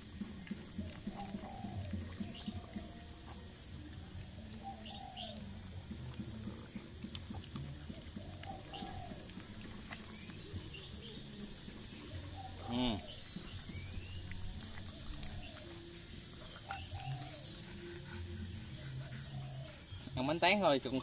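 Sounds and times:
insect trilling: 0.0s - 21.0s
birds calling: 0.8s - 3.0s, 4.6s - 5.5s, 7.8s - 20.6s.

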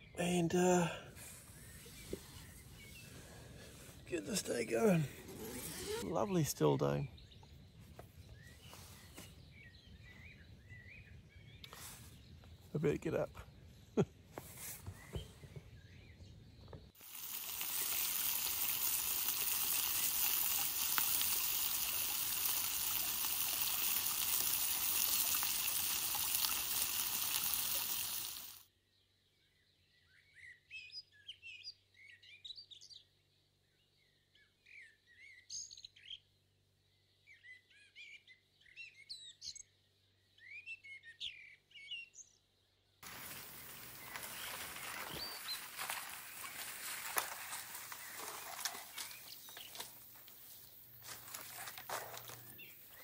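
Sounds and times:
birds chirping and whistling: 0.0s - 12.7s, 13.5s - 16.9s, 43.3s - 49.9s.

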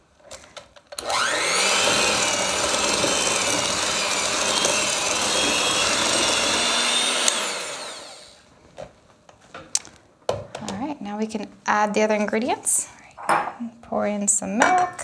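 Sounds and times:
electric hand mixer running: 1.0s - 8.4s.

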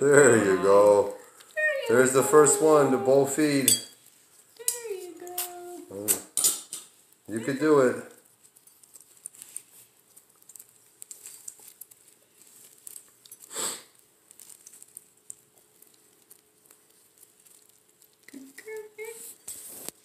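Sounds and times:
kittens lapping wet food: 7.1s - 19.1s.

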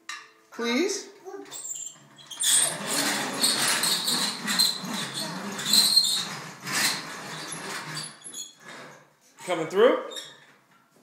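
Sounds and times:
short high squeaks: 1.5s - 9.0s
toy truck wheels rolling on floor: 1.5s - 9.1s.

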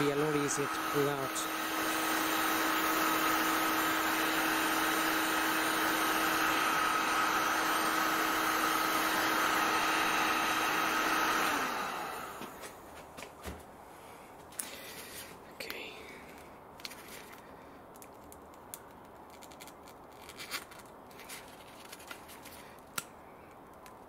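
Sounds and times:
heat gun blowing: 0.0s - 12.8s.

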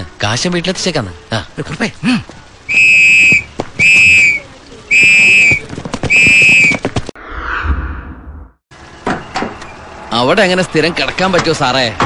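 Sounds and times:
shrill whistle blasts: 2.7s - 6.9s.

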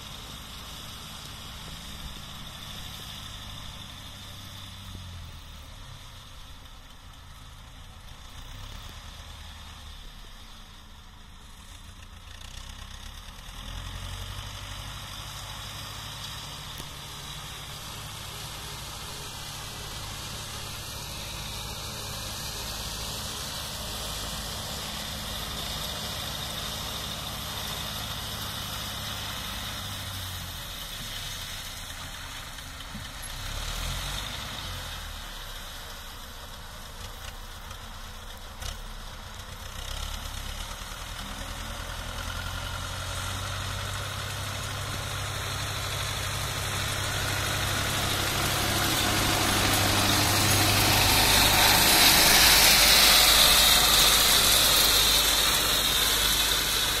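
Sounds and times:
tractor diesel engine: 0.0s - 57.0s.

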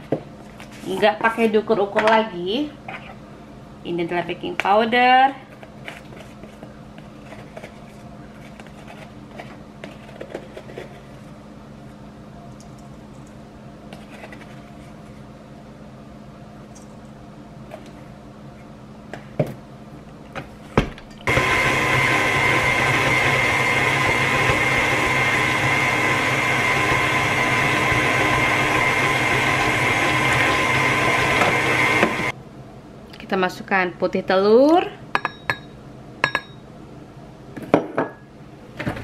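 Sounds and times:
stand mixer motor whining: 21.2s - 32.3s.

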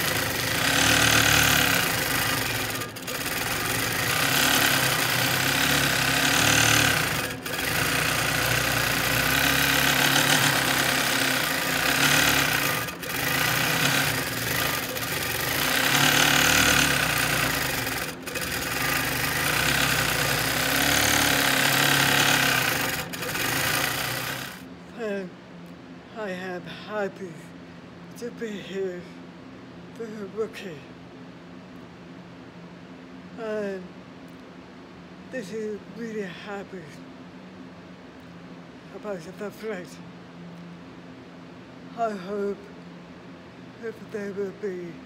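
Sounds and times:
quilting machine needle rattling: 0.0s - 24.6s.

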